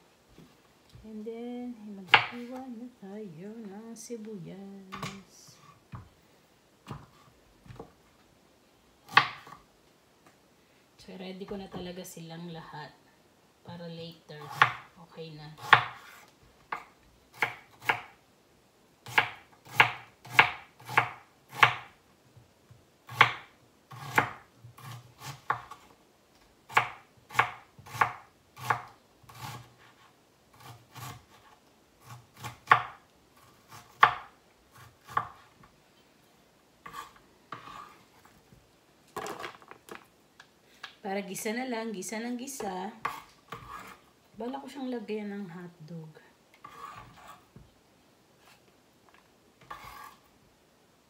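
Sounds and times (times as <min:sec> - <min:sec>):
knife chopping on wooden board: 0:02.1 - 0:02.4, 0:09.1 - 0:09.6, 0:14.4 - 0:14.9, 0:15.6 - 0:18.1, 0:19.1 - 0:21.9, 0:23.1 - 0:25.8, 0:26.7 - 0:30.0, 0:33.7 - 0:35.5.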